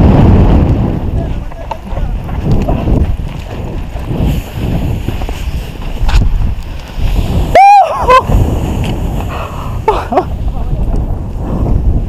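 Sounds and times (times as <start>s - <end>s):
wind buffeting microphone: 0.0s - 12.0s
brief cry: 7.5s - 8.3s
person whooping: 7.5s - 8.4s.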